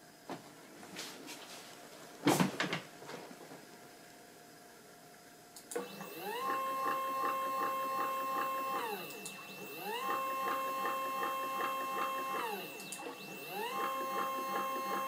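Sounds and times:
stepper motors whining: 0:05.7 - 0:15.0.

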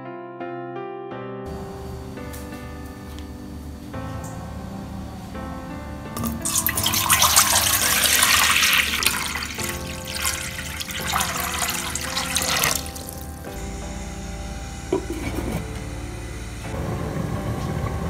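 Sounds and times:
water pouring into a pot: 0:06.2 - 0:13.4.

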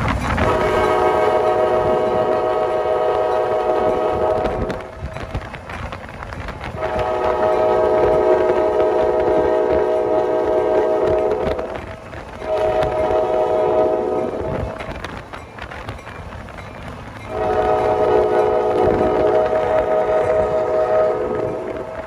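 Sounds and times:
rumble of moving train: 0:00.0 - 0:22.0
locomotive air horn: 0:00.4 - 0:05.0, 0:06.8 - 0:14.9, 0:17.3 - 0:22.0.

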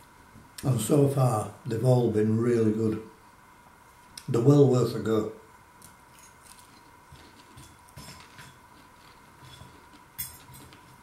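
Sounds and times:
man chewing crunchy food: 0:06.2 - 0:11.0
metal fork clinking bowl: 0:09.4 - 0:10.8.

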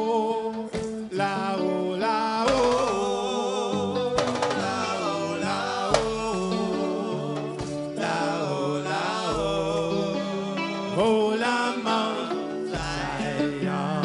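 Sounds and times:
person singing: 0:00.0 - 0:14.0
hand drums: 0:02.5 - 0:03.4, 0:04.0 - 0:08.3.

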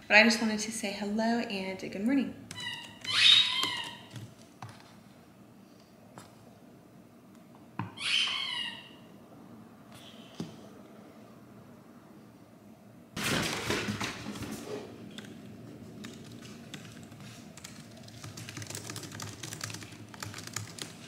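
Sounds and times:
typing on keyboard: 0:02.5 - 0:05.0, 0:16.0 - 0:21.0.

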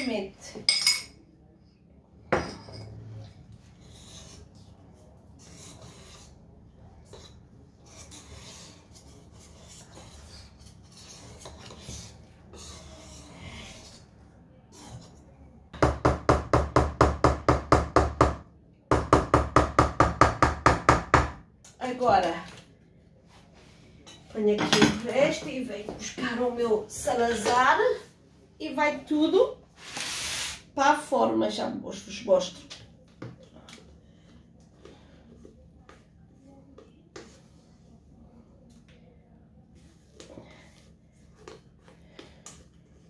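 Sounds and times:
whisk stirring thick batter: 0:03.5 - 0:15.3, 0:36.7 - 0:38.0.

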